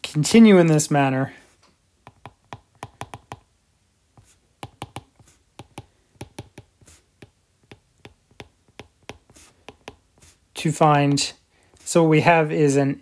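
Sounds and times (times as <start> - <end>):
stylus clicking on tablet screen: 2.0 - 3.5, 4.2 - 10.4.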